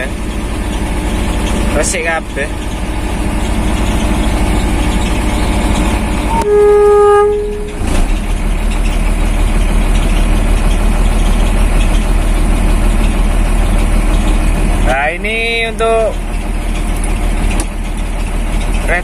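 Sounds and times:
diesel truck engine idling: 0:00.0 - 0:19.0
truck horn blast: 0:06.2 - 0:08.2.

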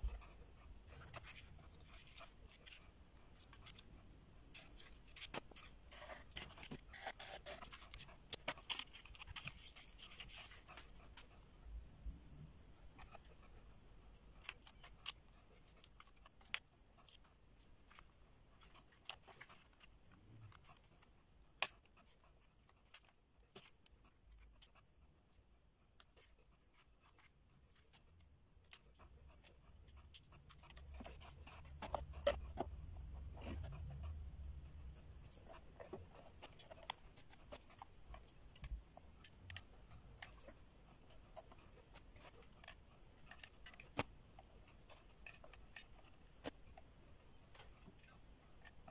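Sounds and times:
paper rubbing: 0:04.6 - 0:11.3.

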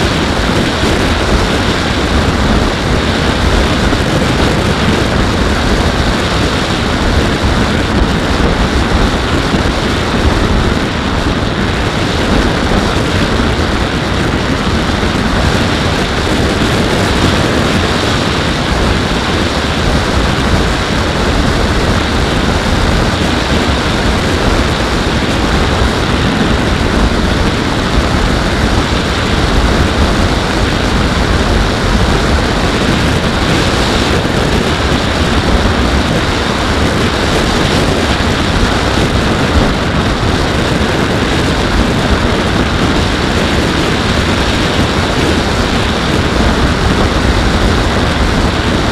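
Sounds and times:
airflow rushing over microphone: 0:00.0 - 0:48.9
propeller drone: 0:00.0 - 0:48.9.

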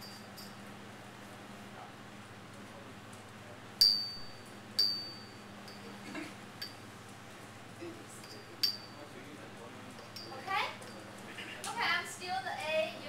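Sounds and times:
low room hum: 0:00.0 - 0:13.0
sharp metallic clinks: 0:03.8 - 0:05.9, 0:08.2 - 0:09.1, 0:10.0 - 0:11.1.

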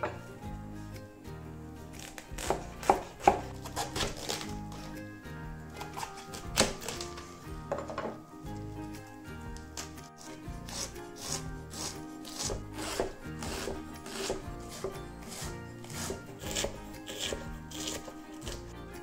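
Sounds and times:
knife slicing cabbage on board: 0:02.0 - 0:05.0, 0:05.8 - 0:07.3, 0:09.6 - 0:18.7.

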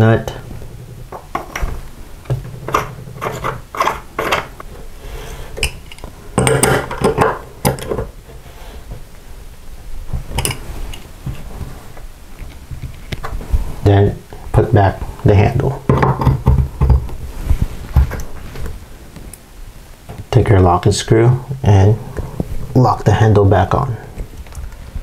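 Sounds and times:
metallic clicks and scrapes: 0:02.6 - 0:04.7.

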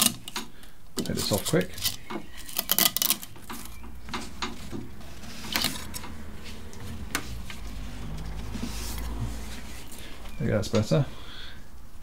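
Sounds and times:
strap scraping: 0:01.0 - 0:10.2.

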